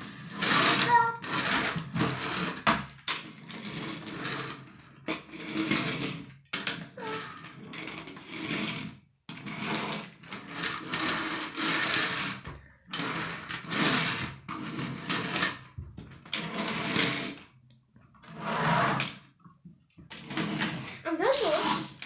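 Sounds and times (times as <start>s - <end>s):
toy motor whirring: 0.0s - 15.6s, 20.1s - 22.0s.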